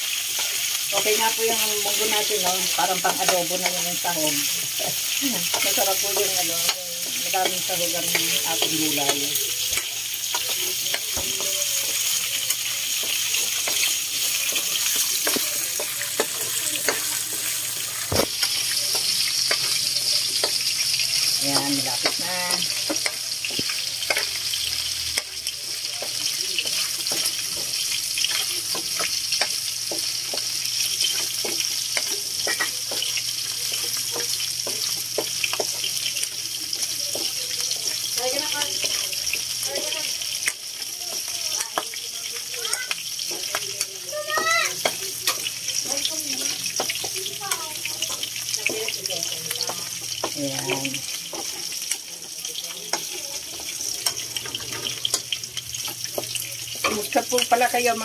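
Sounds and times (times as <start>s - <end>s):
pork sizzling in oil: 0.0s - 58.0s
spatula scraping and clinking wok: 21.2s - 36.0s.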